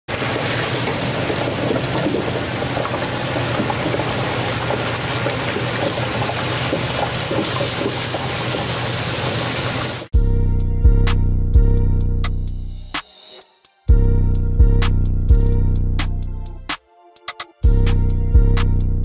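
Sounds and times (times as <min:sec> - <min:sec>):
oil sizzling in a fryer: 0:00.1 - 0:10.1.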